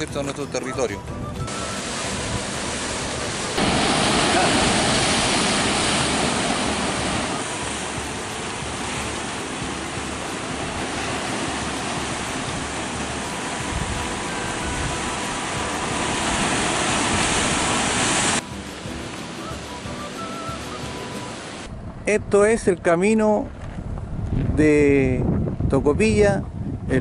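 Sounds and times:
ocean surf breaking: 0:01.4 - 0:21.7.

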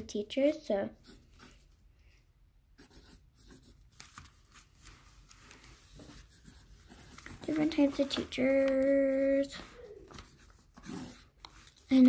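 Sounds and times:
pencil scratching on paper: 0:00.9 - 0:01.7, 0:02.8 - 0:03.9, 0:05.8 - 0:12.0.

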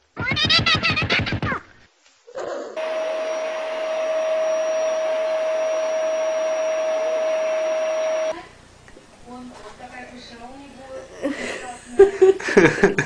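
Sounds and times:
electric motor hum with air hiss: 0:02.8 - 0:08.4.

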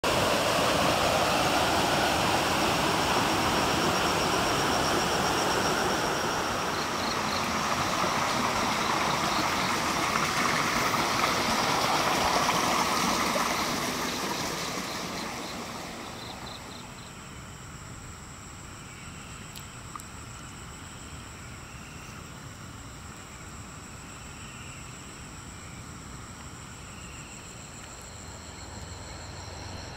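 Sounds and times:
water rushing: 0:00.0 - 0:17.0.

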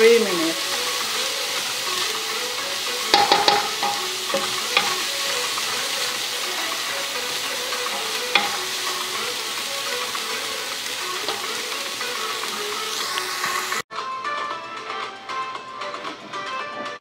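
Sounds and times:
vegetables sizzling in a pot: 0:00.0 - 0:13.8
spatula scraping and knocking pot: 0:03.1 - 0:05.1, 0:08.3 - 0:08.7.

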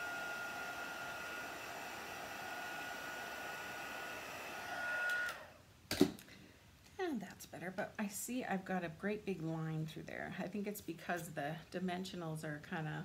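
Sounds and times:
heat tool blowing air: 0:00.0 - 0:05.5.

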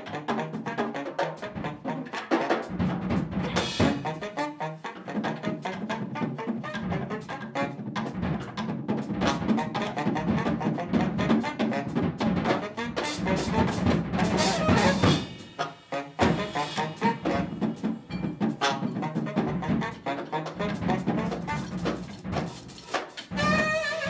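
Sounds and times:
alto saxophone: 0:00.0 - 0:02.2, 0:03.5 - 0:07.8, 0:09.6 - 0:17.8, 0:18.6 - 0:22.0, 0:23.3 - 0:24.0
busy jazz drumming: 0:00.0 - 0:24.0.

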